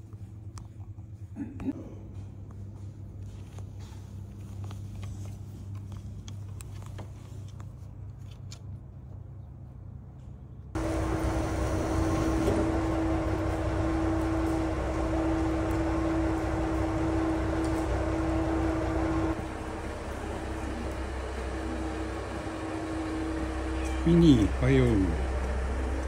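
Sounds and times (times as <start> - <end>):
low mechanical hum: 0.0 - 26.0
mid-pitched drone: 10.8 - 26.0.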